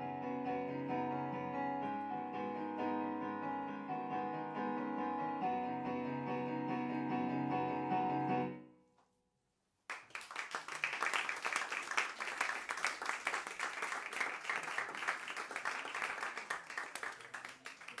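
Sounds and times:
audience applause: 9.9 - 18.0.

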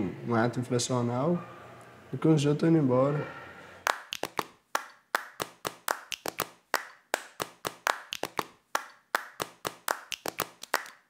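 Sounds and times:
sharp claps with ringing tail: 3.9 - 11.0.

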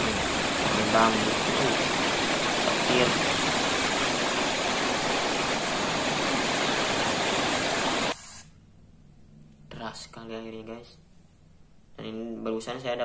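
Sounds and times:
flood water rushing: 0.0 - 8.2
torrential rain: 0.0 - 8.2.

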